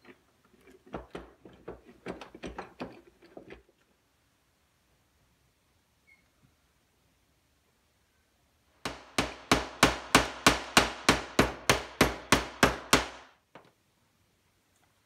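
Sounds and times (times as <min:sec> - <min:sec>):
hammer tapping metal punch: 0:08.9 - 0:13.2.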